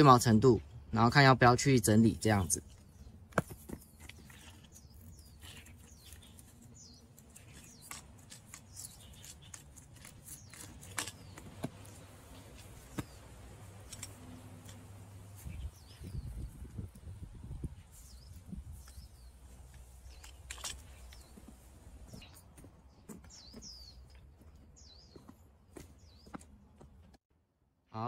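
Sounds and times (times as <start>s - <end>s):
gloved hands rubbing pipe: 2.8s - 15.6s.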